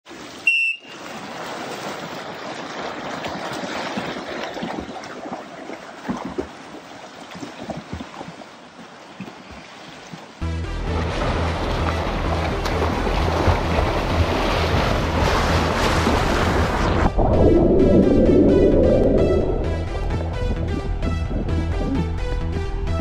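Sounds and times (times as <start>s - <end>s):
water splashing from swimmers: 0.1s - 17.1s.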